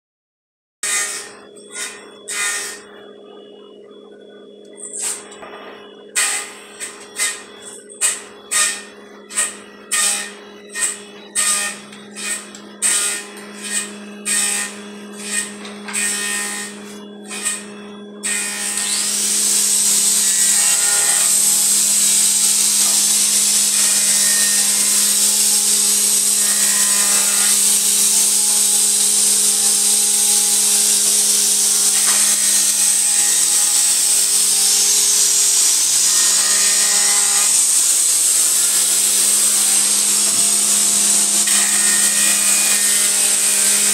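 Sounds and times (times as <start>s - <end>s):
power tool working wood: 0.8s - 3.9s, 4.6s - 43.9s.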